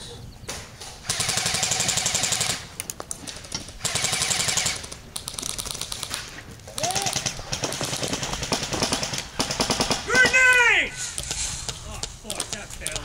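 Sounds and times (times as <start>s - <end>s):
airsoft gun firing bursts: 1.0s - 2.7s, 3.3s - 10.5s.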